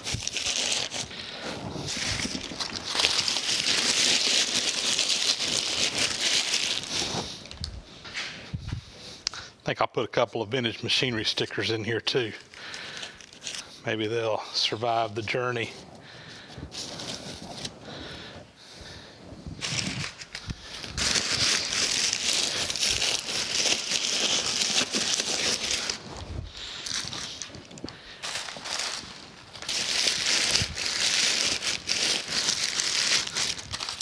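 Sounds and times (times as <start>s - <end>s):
paper crumpling: 0.0s - 7.7s, 11.4s - 13.8s, 16.7s - 17.7s, 19.6s - 34.0s.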